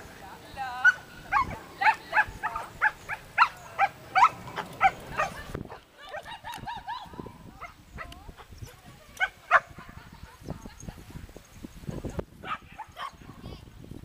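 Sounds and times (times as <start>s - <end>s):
dog barking excitedly: 0.8s - 5.4s, 9.2s - 9.7s.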